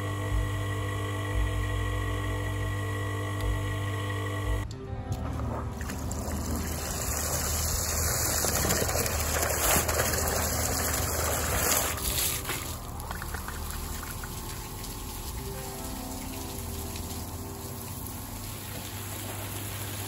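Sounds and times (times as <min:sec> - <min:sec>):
water gushing and splashing: 0:05.4 - 0:20.0.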